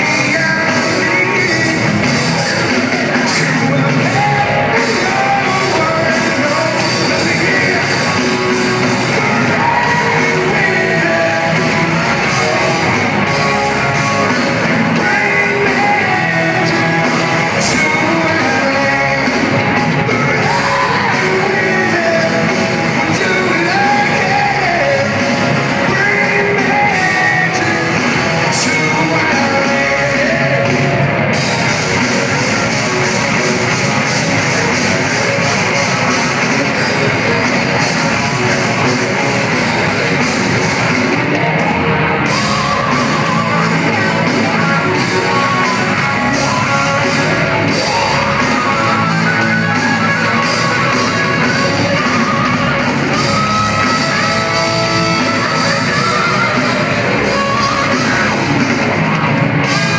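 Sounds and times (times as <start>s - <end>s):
person singing lead vocal: 0.0s - 40.8s, 42.2s - 59.9s
hard rock band playing live: 0.0s - 59.9s.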